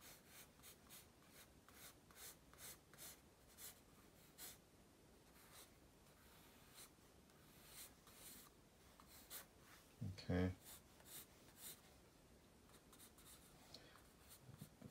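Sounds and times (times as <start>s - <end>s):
pencil sketching on paper: 0.0s - 4.6s, 5.3s - 9.8s, 10.5s - 11.9s, 12.7s - 14.9s.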